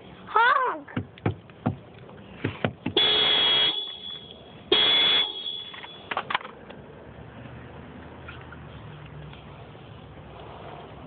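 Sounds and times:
vehicle horn honks: 0:03.0 - 0:06.1.

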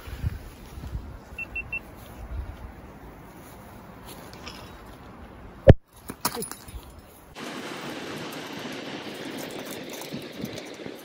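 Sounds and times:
low wind rumble: 0:00.0 - 0:04.0
short high peeps: 0:01.4 - 0:01.8.

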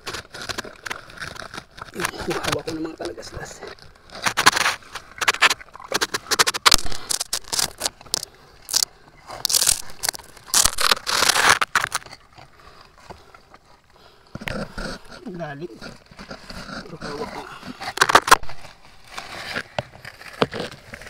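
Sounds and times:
hands scraping in mud and brush: 0:00.0 - 0:12.5, 0:14.5 - 0:21.0.

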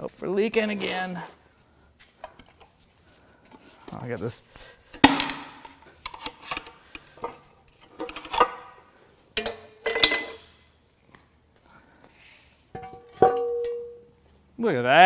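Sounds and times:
pry bar clanking on metal: 0:09.4 - 0:10.5.

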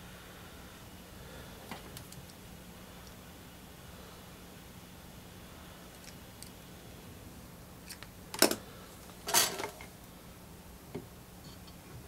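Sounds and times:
metal clatter: 0:09.3 - 0:09.9.

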